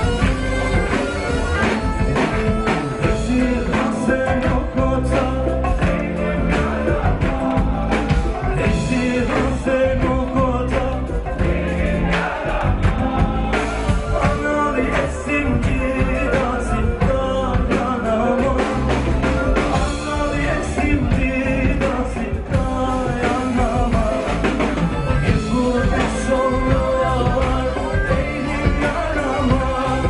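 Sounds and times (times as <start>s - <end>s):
bowed fiddle melody: 0.0s - 5.0s
man singing: 0.0s - 30.0s
rock drum kit: 0.0s - 30.0s.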